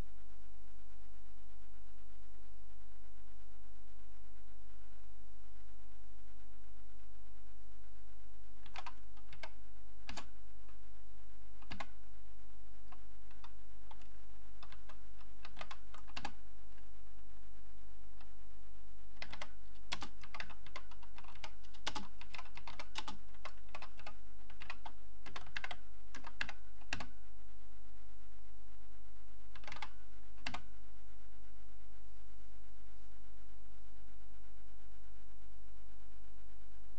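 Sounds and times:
steady hum: 0.0 - 36.9
computer keyboard typing: 8.6 - 10.3, 11.6 - 11.9, 12.9 - 16.4, 19.2 - 27.1, 29.6 - 30.6.

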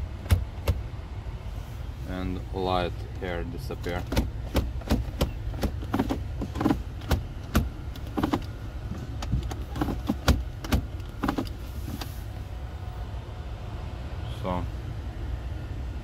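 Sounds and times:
low car hum: 0.0 - 16.0
gear selector lever clicking: 0.2 - 0.9, 3.1 - 12.2.

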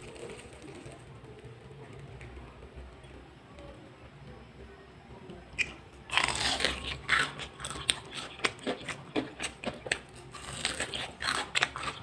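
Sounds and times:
fried crust crunching: 0.0 - 1.7, 5.6 - 12.0.

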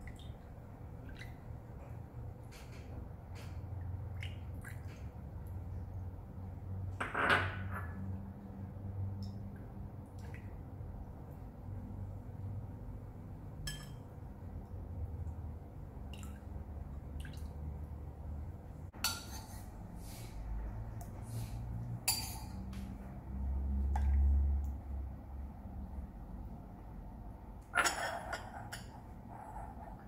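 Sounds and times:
soup dripping: 13.6 - 14.1, 15.2 - 17.8, 20.8 - 25.1.

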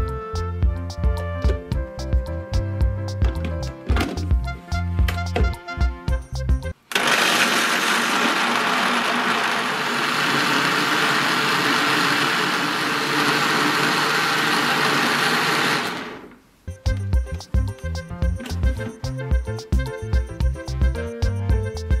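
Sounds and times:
background music with a beat: 0.0 - 6.8, 16.6 - 22.0
blender running at high speed: 6.9 - 16.3.

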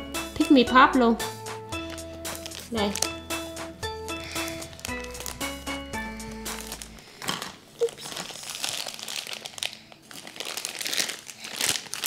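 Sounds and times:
foil packet rustling and crackling: 1.8 - 3.2, 4.2 - 12.0
scissors cutting foil: 1.8 - 3.2, 4.2 - 5.6, 6.3 - 9.5.

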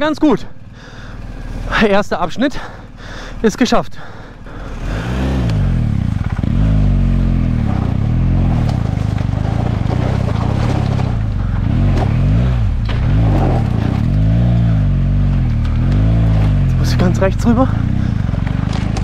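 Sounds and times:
motorcycle engine revving: 0.0 - 2.0, 4.2 - 19.0
stones knocking under bike: 7.6 - 14.2, 18.3 - 19.0.

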